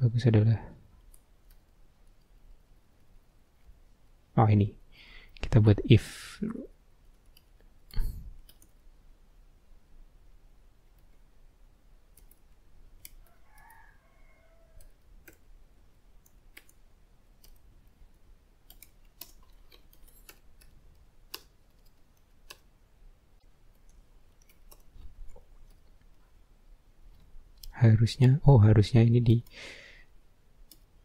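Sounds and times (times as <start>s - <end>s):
computer keyboard keys clicking: 8.4s - 8.8s, 14.8s - 15.4s, 18.6s - 22.7s.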